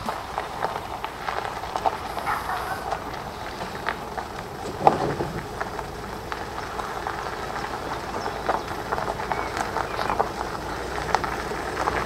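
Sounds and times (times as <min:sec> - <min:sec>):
car driving on dirt track: 0:00.0 - 0:12.0
rattles and knocks in car cabin: 0:04.5 - 0:05.9.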